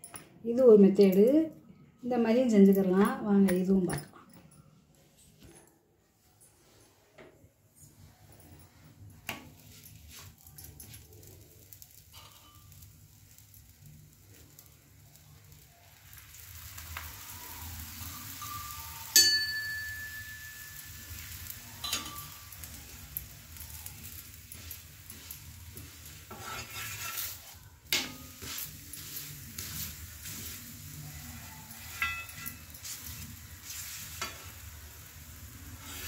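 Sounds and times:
flatbread sizzling in oil: 9.2 - 36.0
ladle clinking on pan: 21.8 - 22.4, 31.9 - 32.7
ladle scraping pan: 25.7 - 30.6.

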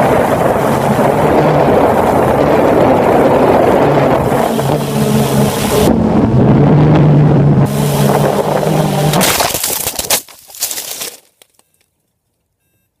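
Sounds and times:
quadcopter motors humming: 0.0 - 6.0, 7.6 - 9.2
wind on microphone: 0.0 - 9.3
quadcopter crash knocks and scraping: 9.1 - 11.6.

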